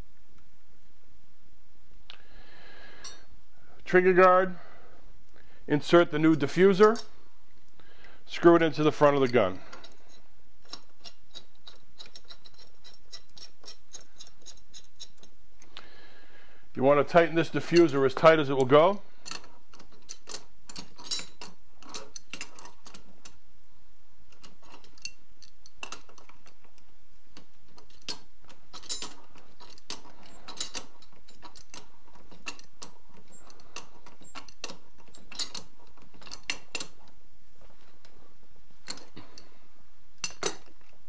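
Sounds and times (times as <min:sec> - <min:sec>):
steady low background noise: 0:00.0 - 0:41.0
wrench clicking on metal: 0:09.7 - 0:15.8, 0:27.4 - 0:37.0.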